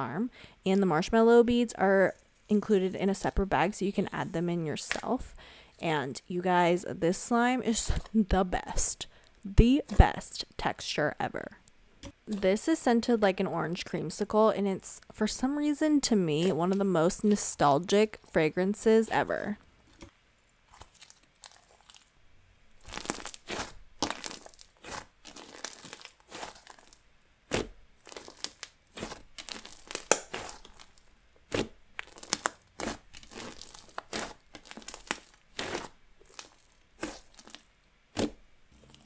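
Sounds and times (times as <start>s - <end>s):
slime crackling and popping: 20.7s - 22.1s, 22.7s - 39.0s.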